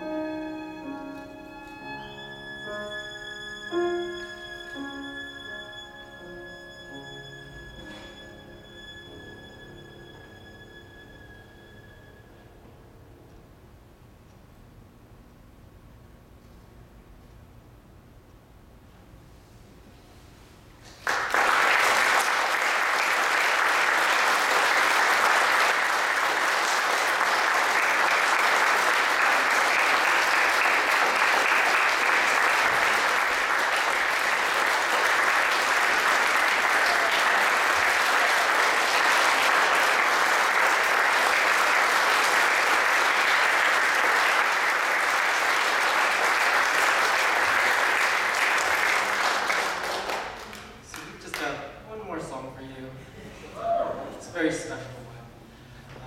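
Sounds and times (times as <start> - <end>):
audience applauding: 20.9 - 51.6.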